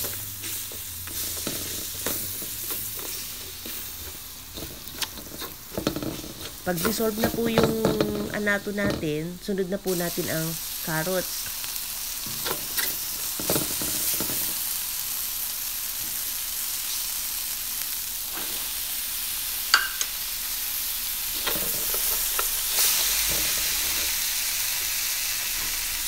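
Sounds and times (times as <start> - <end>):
spatula scraping vegetables: 0.0 - 14.7, 21.4 - 24.3
oil sizzling in a wok: 0.0 - 26.0.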